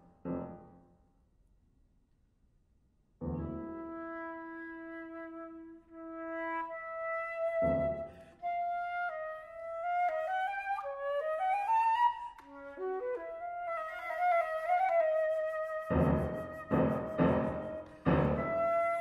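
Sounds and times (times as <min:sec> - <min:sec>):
piano chords: 0:00.0 - 0:00.8, 0:03.2 - 0:04.1, 0:15.9 - 0:19.0
flute playing: 0:03.4 - 0:19.0.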